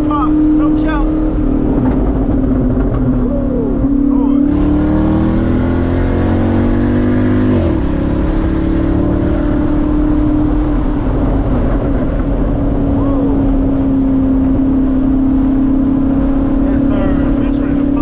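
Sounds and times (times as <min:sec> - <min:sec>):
loud car exhaust drone: 0:00.0 - 0:18.0.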